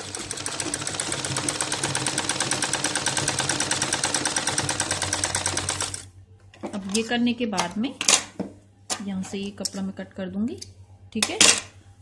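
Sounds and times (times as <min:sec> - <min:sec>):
sewing machine stitching: 0:00.0 - 0:06.0.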